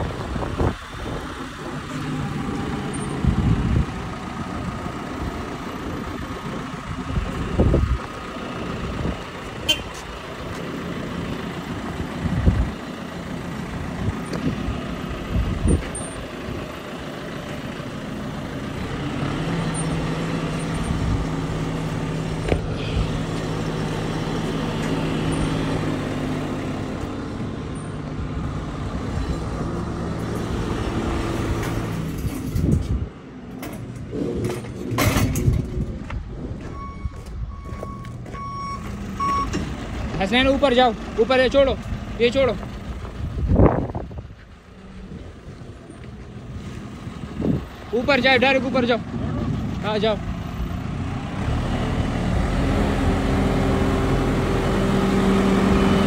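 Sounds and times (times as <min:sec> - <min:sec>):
diesel engine revving: 0:00.0 - 0:56.0
reversing beeps: 0:36.6 - 0:39.6.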